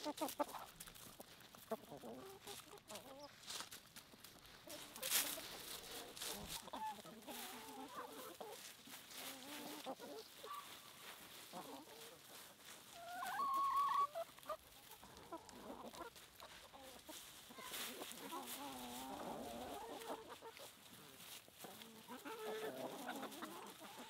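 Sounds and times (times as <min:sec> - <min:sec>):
chickens clucking: 0:00.0 - 0:24.0
chicken drawn-out call: 0:04.6 - 0:24.0.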